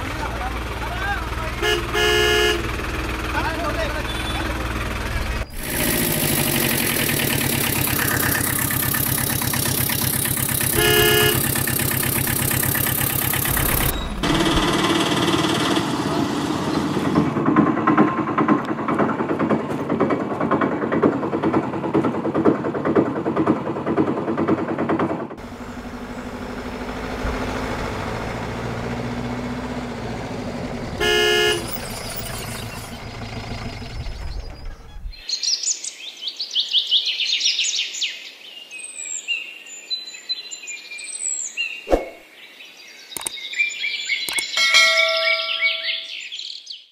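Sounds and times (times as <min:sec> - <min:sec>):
motor vehicle engine: 0:00.0 - 0:35.2
rattling small engine: 0:00.0 - 0:35.2
horn tooting: 0:01.1 - 0:03.1, 0:03.9 - 0:04.8, 0:05.6 - 0:14.4, 0:30.8 - 0:33.0.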